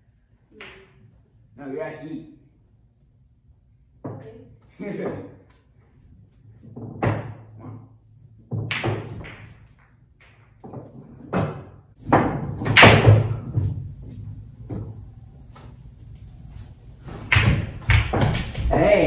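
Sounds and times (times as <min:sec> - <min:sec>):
billiard balls knocking: 0:06.5 - 0:15.8, 0:17.0 - 0:18.9.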